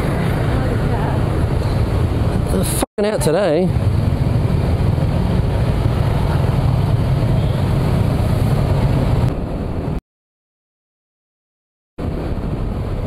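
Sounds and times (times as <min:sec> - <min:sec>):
wind noise on microphone: 0:00.0 - 0:02.8, 0:03.6 - 0:10.0, 0:12.0 - 0:13.0.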